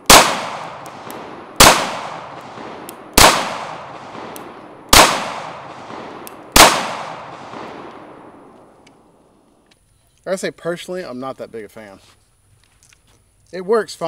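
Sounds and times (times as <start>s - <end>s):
pistol shots with echo: 0.0s - 8.4s.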